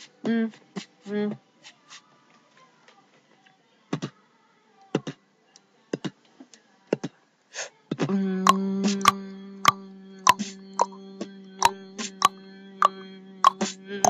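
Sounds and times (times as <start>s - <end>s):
beatboxing kicks and clicks: 8.5s - 11.0s, 12.1s - 13.7s.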